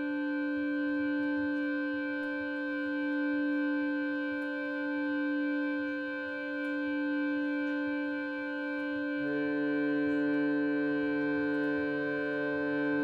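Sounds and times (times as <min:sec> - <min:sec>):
harmonium sustained chord: 0:00.0 - 0:13.0.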